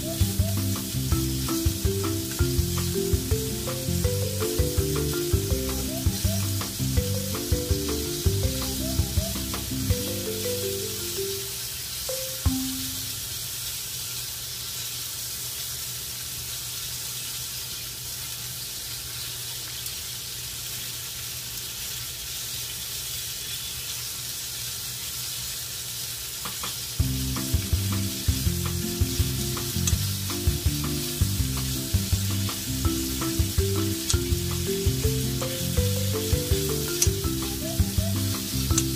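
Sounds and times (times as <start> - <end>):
background music: 0.0 - 11.5, 12.1 - 13.1, 27.0 - 38.9
pork and onion sizzling in pan: 0.0 - 38.9.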